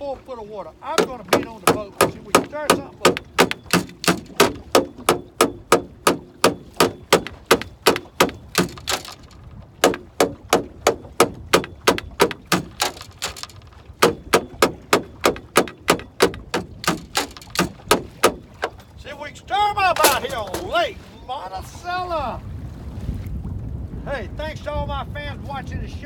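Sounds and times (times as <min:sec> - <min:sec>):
knocks on metal boat hull: 0:00.9 - 0:18.9, 0:20.0 - 0:20.7.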